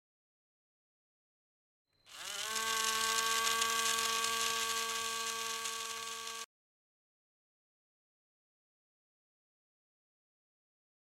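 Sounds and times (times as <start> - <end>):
small electric motor whining: 2.0 - 6.5.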